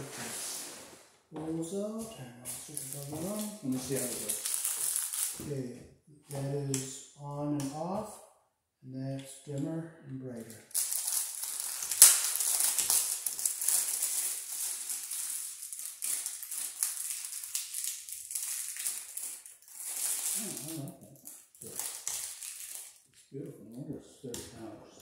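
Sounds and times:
plastic packaging crinkling: 0:02.5 - 0:05.5, 0:10.5 - 0:23.2.

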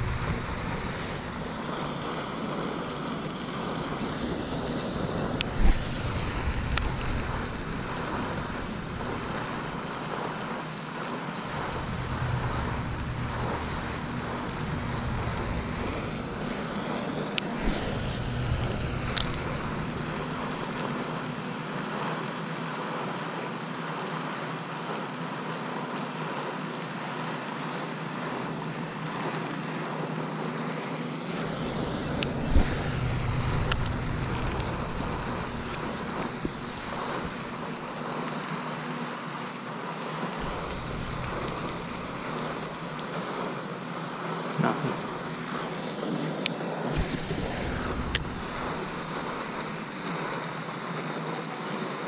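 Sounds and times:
wind gusting on microphone: 0:00.0 - 0:10.7, 0:11.3 - 0:21.6, 0:31.2 - 0:38.2, 0:40.4 - 0:43.4, 0:46.8 - 0:49.9
steady outdoor hiss: 0:00.0 - 0:52.0.

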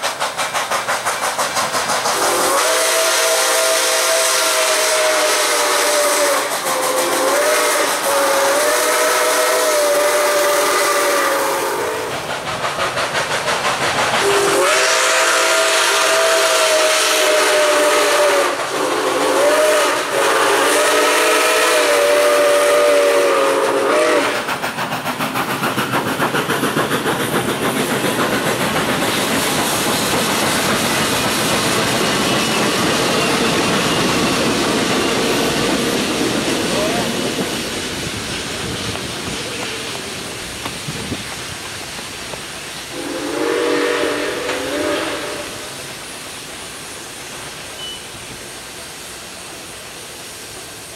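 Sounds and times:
wheels clicking over rail joints: 0:00.0 - 0:02.5, 0:12.1 - 0:14.6, 0:24.4 - 0:42.5
passing train rush: 0:00.0 - 0:50.9
steam whistle blasts: 0:02.2 - 0:12.2, 0:14.2 - 0:24.5, 0:42.9 - 0:45.8, 0:47.7 - 0:48.2.

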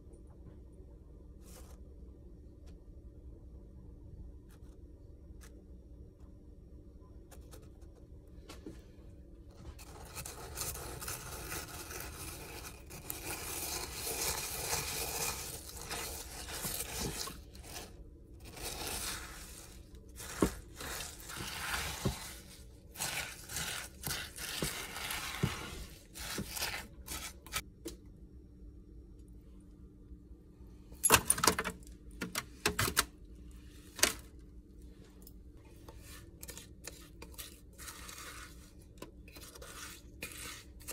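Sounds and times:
utensil scraping a pot: 0:09.6 - 0:27.6, 0:35.7 - 0:40.9.

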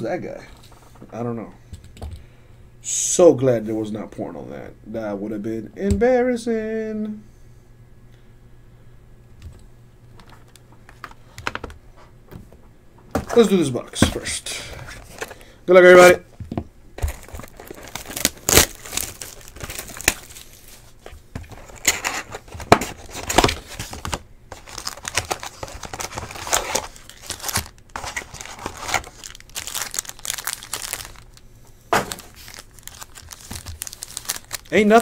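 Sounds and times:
plastic wrap tearing: 0:17.0 - 0:20.9, 0:21.6 - 0:31.4, 0:32.0 - 0:35.0
foil packs rustling: 0:17.0 - 0:31.4, 0:32.0 - 0:35.0.

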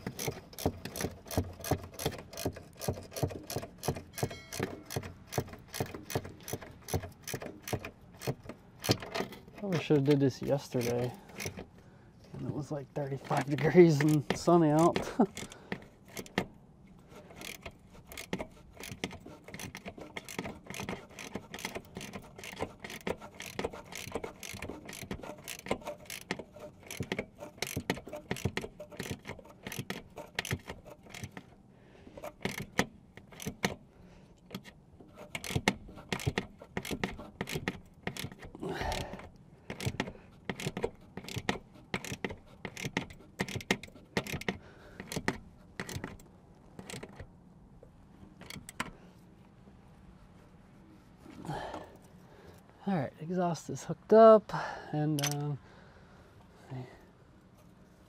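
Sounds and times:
ratchet wrench clicking: 0:00.0 - 0:09.9, 0:10.7 - 0:11.7, 0:13.3 - 0:16.5, 0:17.2 - 0:31.5, 0:32.2 - 0:33.8, 0:34.5 - 0:47.2, 0:55.2 - 0:55.4.

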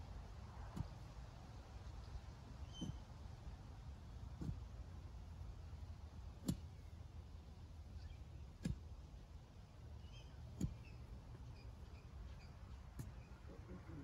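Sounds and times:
digging bar striking soil: 0:00.5 - 0:01.2, 0:02.4 - 0:03.7, 0:04.3 - 0:04.7, 0:05.8 - 0:07.0, 0:08.4 - 0:09.6, 0:10.4 - 0:13.4.

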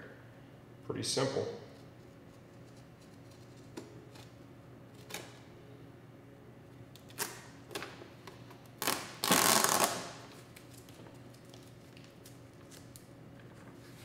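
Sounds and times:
duct tape tearing off roll: 0:07.0 - 0:07.9, 0:08.7 - 0:10.4.

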